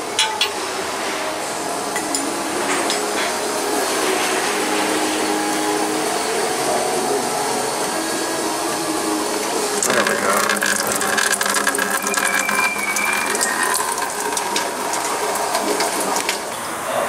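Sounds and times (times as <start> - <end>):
fluid pouring into bucket: 9.8 - 16.5
small crackling splashes: 9.8 - 16.5.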